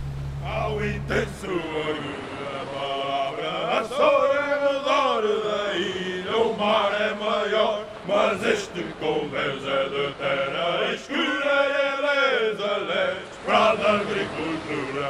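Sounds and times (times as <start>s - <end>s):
person chanting long notes: 0.0s - 4.8s.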